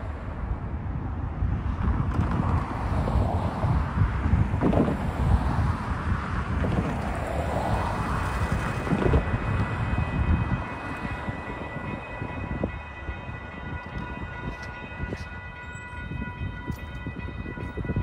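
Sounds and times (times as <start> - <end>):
low wind rumble: 0.0 - 18.0
passing road traffic: 0.0 - 18.0
railroad crossing bell ringing: 8.4 - 18.0.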